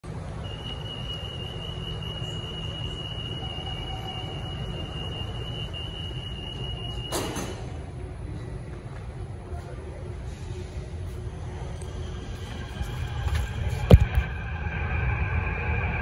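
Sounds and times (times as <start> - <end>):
low equipment hum: 0.0 - 16.0
high-pitched door warning tone: 0.2 - 7.8.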